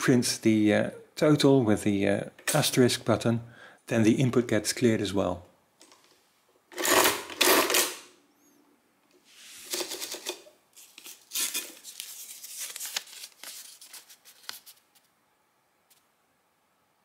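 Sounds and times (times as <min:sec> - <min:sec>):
paper tape rasping and crinkling: 0:09.6 - 0:15.1.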